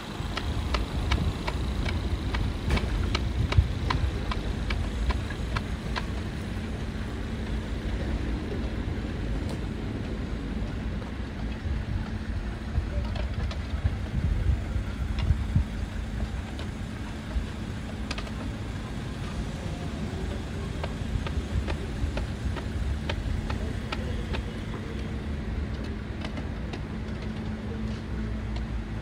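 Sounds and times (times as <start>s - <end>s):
quick evenly spaced ticks: 0.0s - 8.7s, 13.4s - 27.9s
diesel engine idling: 0.0s - 29.0s.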